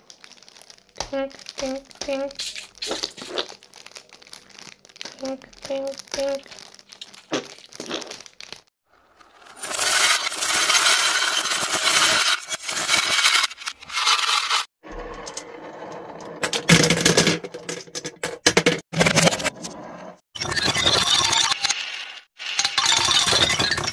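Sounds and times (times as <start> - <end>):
stress ball being squeezed: 1.4 - 8.7
marbles rolling on wooden track: 9.2 - 17.7.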